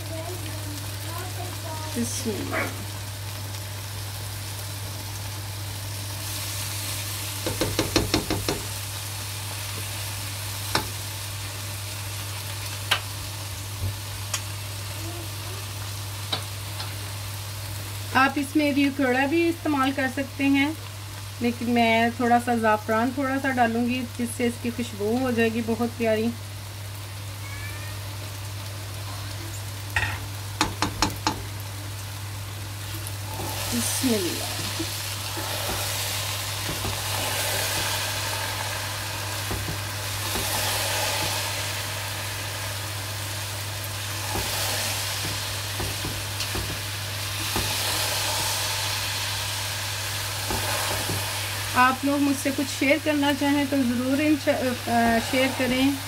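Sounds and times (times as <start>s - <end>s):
syrup sizzling in a pot: 0.0s - 56.0s
utensil tapping: 7.4s - 8.7s
utensil scrape: 54.6s - 56.0s.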